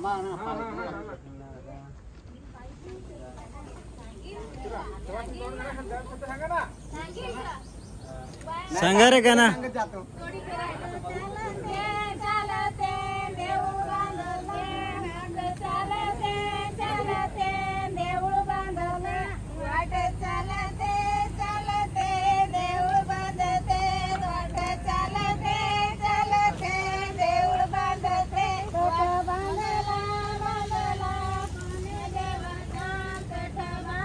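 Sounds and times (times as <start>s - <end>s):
woman singing in a high voice: 10.2s - 34.0s.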